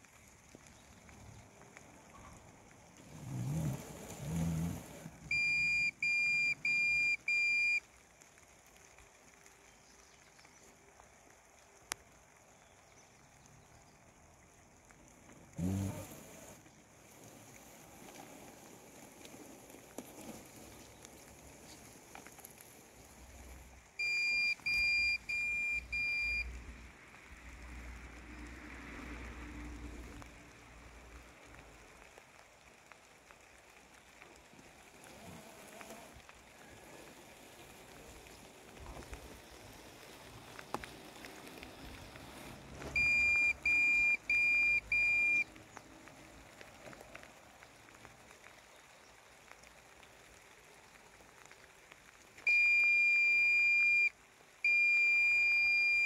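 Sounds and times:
rain on wet grass: 0:00.0 - 0:56.0
robotic lawn mower beeping: 0:03.3 - 0:07.8, 0:24.0 - 0:26.5, 0:42.4 - 0:45.4, 0:52.5 - 0:54.1, 0:54.7 - 0:56.0.

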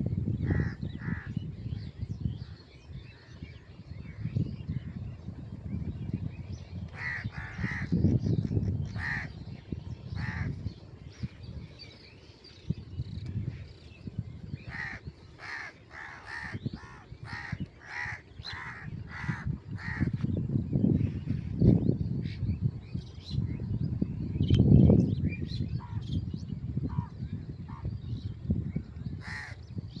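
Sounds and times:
crows cawing: 0:00.5 - 0:01.3, 0:07.0 - 0:07.9, 0:09.0 - 0:09.3, 0:10.2 - 0:10.5, 0:14.7 - 0:20.2, 0:29.2 - 0:29.6.

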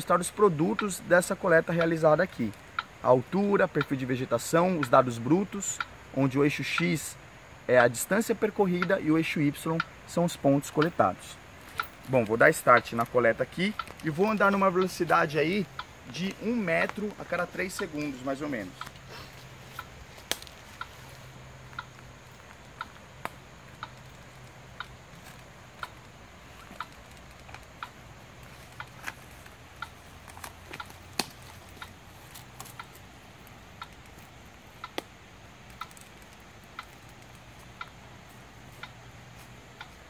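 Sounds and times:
faint ticking of scanner: 0:00.0 - 0:40.0
footsteps on dry leaves: 0:11.5 - 0:33.2.

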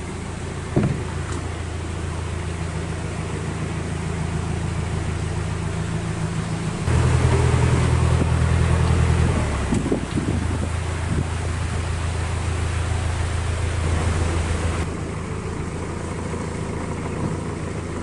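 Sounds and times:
boat engine humming at low revs: 0:00.0 - 0:18.0.

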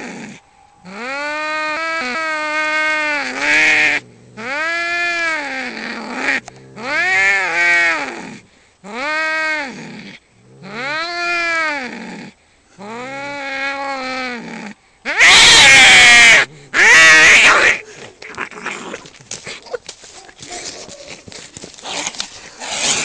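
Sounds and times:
cat screeching: 0:15.1 - 0:19.0
cats yowling: 0:15.1 - 0:19.1.

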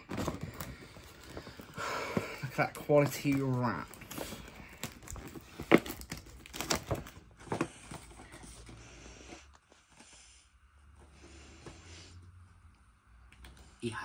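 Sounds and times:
wrapping paper tearing and rustling: 0:00.0 - 0:08.4.

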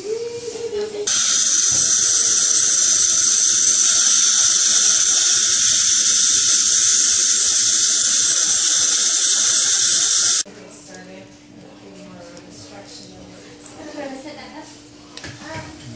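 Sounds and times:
dental drill whining: 0:01.1 - 0:10.4.

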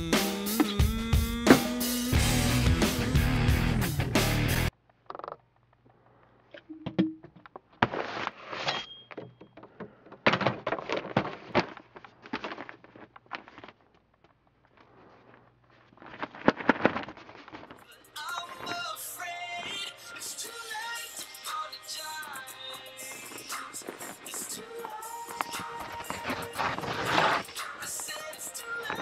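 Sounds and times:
music: 0:00.0 - 0:04.7, 0:17.8 - 0:29.0
handling knocks and rustles: 0:06.6 - 0:17.8.

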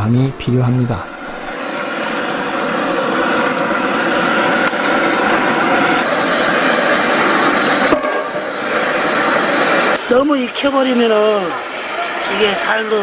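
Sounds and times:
gas burner rushing: 0:00.0 - 0:13.0.

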